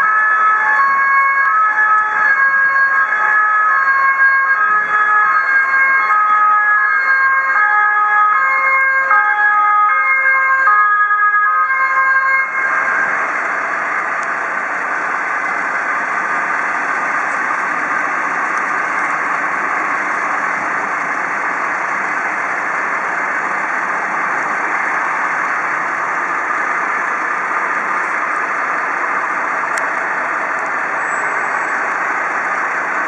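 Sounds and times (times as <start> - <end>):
two-tone siren: 0.0 - 14.0
steady rushing noise: 12.5 - 33.0.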